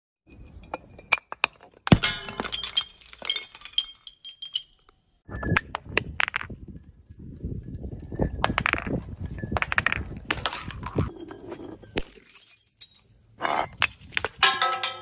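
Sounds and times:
glass bottle smashing on concrete: 1.0 - 5.6, 8.4 - 13.1, 14.4 - 15.0
glass clinking: 1.9 - 5.6, 8.0 - 13.0
glass shards tinkling: 1.9 - 5.6, 6.9 - 13.1.

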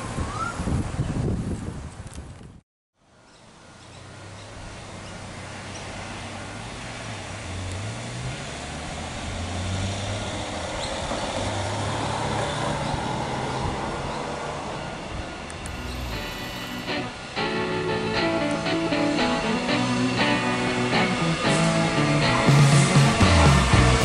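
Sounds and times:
electric train approaching: 5.9 - 24.0
low hum shifting in pitch: 14.6 - 24.0.

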